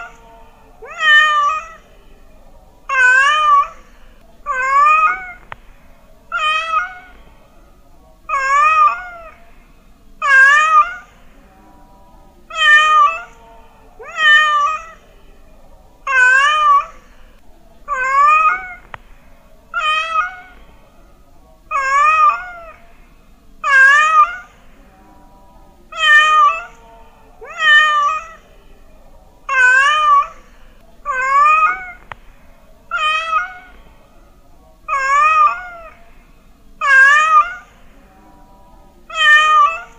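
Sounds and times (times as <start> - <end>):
cat meowing: 0.8 - 1.8, 2.9 - 5.6, 6.3 - 7.2, 8.3 - 9.4, 10.2 - 11.1, 12.5 - 13.4, 14.0 - 15.0, 16.1 - 17.0, 17.9 - 19.0, 19.7 - 20.6, 21.7 - 22.8, 23.6 - 24.6, 25.9 - 26.8, 27.4 - 28.4, 29.5 - 30.4, 31.1 - 32.2, 32.9 - 33.8, 34.9 - 36.0, 36.8 - 37.8, 39.1 - 39.9.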